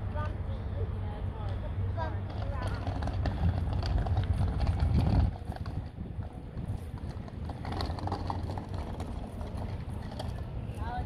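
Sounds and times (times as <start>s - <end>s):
bicycle tyres crunching on gravel: 2.4s - 11.0s.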